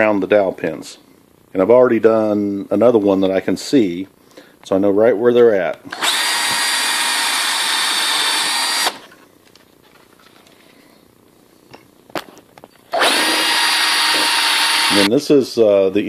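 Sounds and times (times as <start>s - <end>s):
cordless drill boring into wood: 5.9s - 9.1s, 12.9s - 15.1s.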